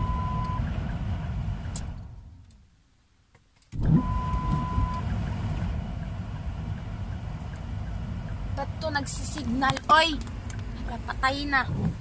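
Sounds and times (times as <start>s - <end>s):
electronic beep: 0.0s - 0.7s, 3.8s - 5.1s
car cabin road rumble: 3.7s - 12.0s.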